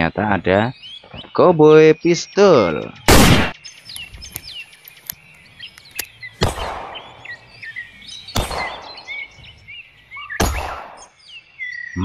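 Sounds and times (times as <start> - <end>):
small birds chirping: 0.0 - 12.0
sharp clicks: 3.9 - 7.0.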